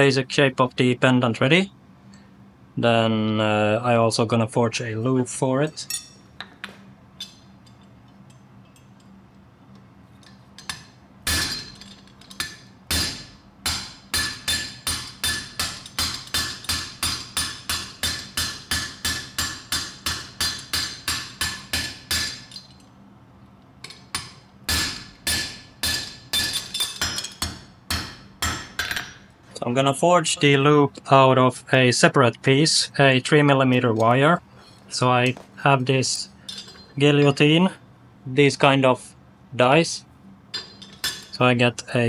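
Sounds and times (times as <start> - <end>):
hammer striking anvil: 10.7 - 22.6, 23.9 - 29.3.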